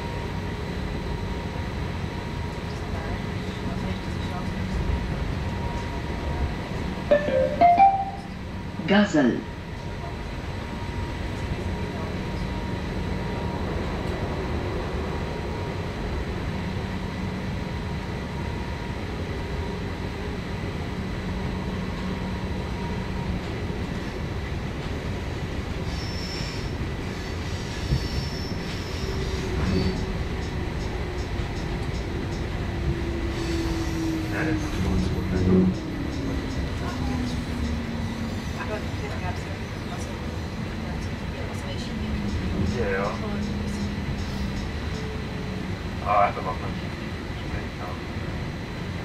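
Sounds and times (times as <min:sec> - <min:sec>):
train wheels rumbling on rail: 0:00.0 - 0:07.1, 0:09.4 - 0:49.0
low falling tone: 0:07.1 - 0:08.5.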